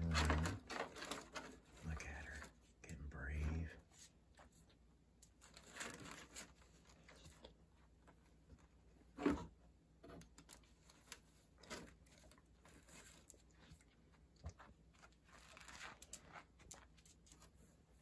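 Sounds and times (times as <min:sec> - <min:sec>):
plastic bag and cardboard rustling: 0:00.0 - 0:02.5, 0:05.4 - 0:09.5, 0:10.1 - 0:13.8, 0:14.6 - 0:18.0
dog crunching kibble: 0:11.6 - 0:17.6.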